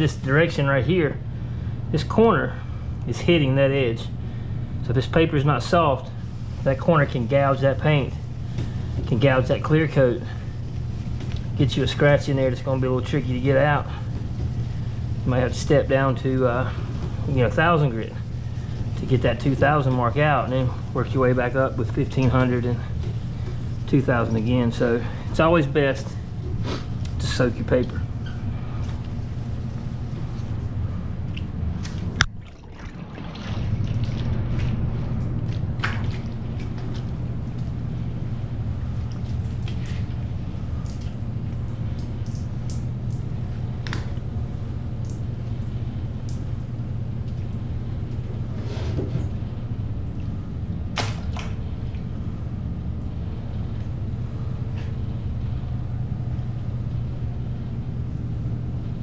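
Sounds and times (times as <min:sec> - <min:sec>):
low steady hum: 0:00.0 - 0:59.0
sandpaper rubbing: 0:06.2 - 0:24.8.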